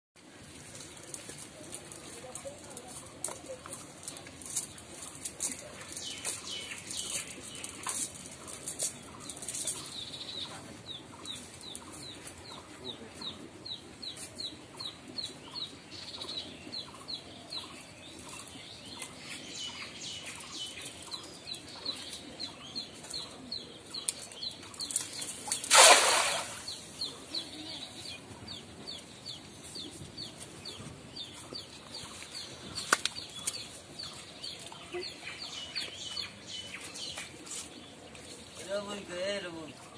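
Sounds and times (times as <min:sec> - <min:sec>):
net splashing into water: 0:25.5 - 0:26.7.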